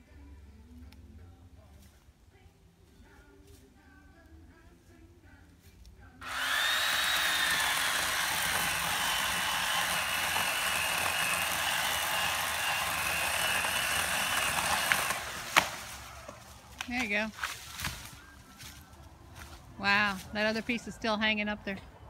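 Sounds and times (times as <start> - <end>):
electric chainsaw cutting wood: 6.2 - 17.1
tree cracking: 6.3 - 18.3.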